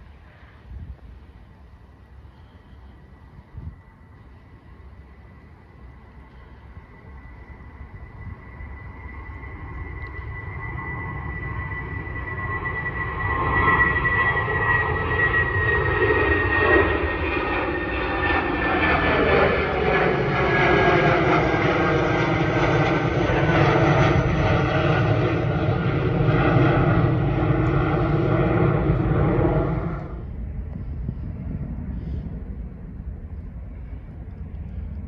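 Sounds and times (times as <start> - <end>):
jet engine roar with whine: 0.0 - 35.0
outdoor background: 0.0 - 35.0.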